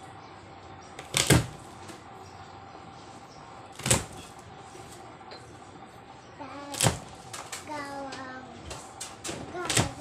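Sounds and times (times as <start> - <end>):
faint steady hum: 0.0 - 10.0
knife chopping on cutting board: 1.0 - 1.6.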